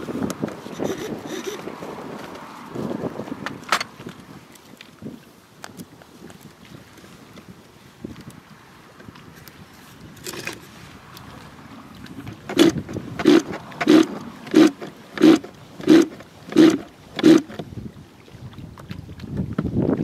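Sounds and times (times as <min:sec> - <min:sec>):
hand tool strokes on engine: 0:00.7 - 0:01.7, 0:09.8 - 0:10.8, 0:12.3 - 0:17.6.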